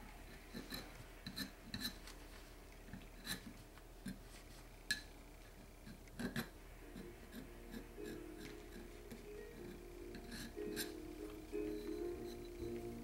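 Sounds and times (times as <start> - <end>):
metal scraper scraping cork: 0.4 - 2.0, 3.2 - 4.2, 5.8 - 9.0, 9.6 - 11.0.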